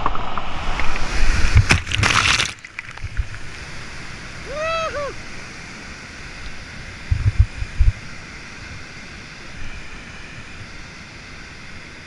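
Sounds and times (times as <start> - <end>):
waterfall roaring: 0.6 - 7.2
low thumps on microphone: 7.1 - 8.0.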